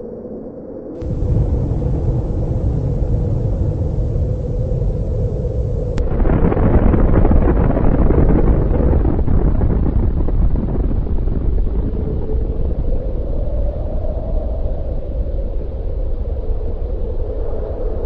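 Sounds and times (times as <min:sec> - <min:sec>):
explosion rumbling and crackling: 0:01.0 - 0:14.0.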